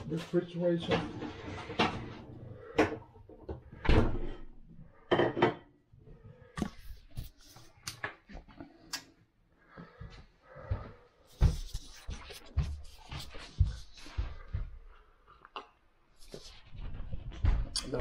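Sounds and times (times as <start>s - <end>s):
household objects knocking and clattering: 0.8s - 5.8s.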